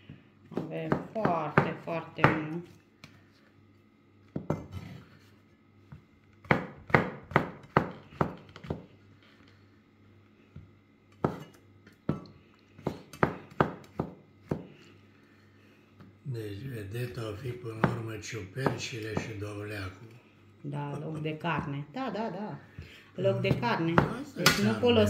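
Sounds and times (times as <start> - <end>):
knife knocking on wooden cutting board: 18.6 - 19.4, 23.4 - 24.2.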